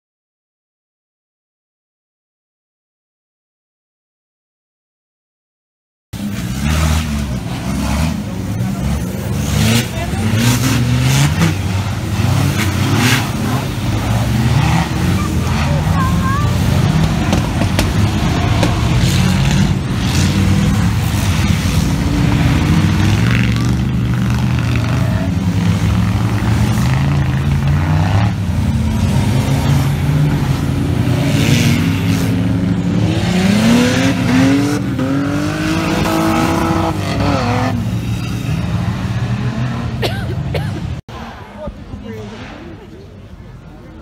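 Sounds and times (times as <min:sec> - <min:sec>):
off-road vehicle engine revving: 0:06.2 - 0:43.7.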